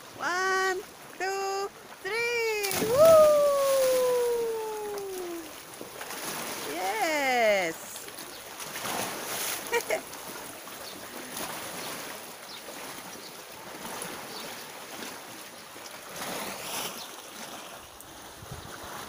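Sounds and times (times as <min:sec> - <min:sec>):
sea water lapping on rocks: 0:00.0 - 0:19.0.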